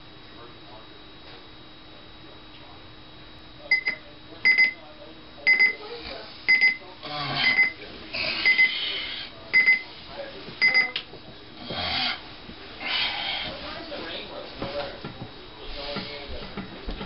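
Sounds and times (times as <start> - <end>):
digital alarm clock beeping: 3.7 - 4.8, 5.5 - 5.8, 6.5 - 6.8, 7.4 - 7.8, 8.4 - 8.8, 9.6 - 9.8, 10.6 - 11.0.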